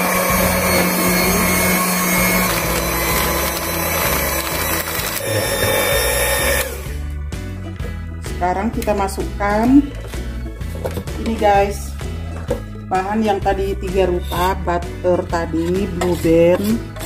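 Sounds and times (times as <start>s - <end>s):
electric hand mixer whirring: 0.0s - 7.2s.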